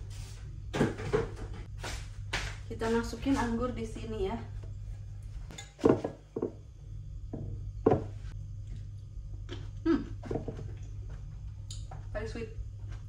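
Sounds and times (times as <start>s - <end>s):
glass container knocks and clunks: 7.3s - 8.2s.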